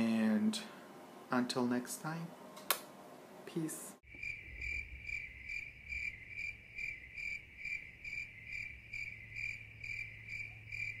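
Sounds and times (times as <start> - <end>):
high-pitched cricket-like chirps: 4.1 - 11.0.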